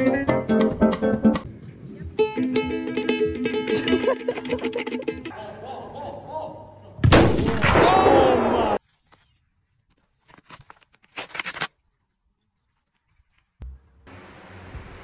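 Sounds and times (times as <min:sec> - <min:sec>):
raised human voice: 0:07.7 - 0:08.8.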